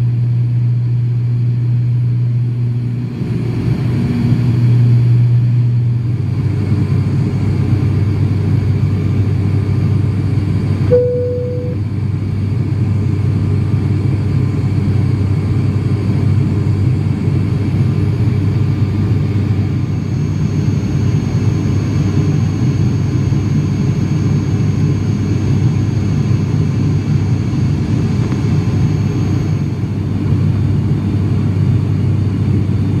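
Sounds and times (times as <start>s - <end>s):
turboprop engines droning: 0.0s - 33.0s
short beep: 10.9s - 11.8s.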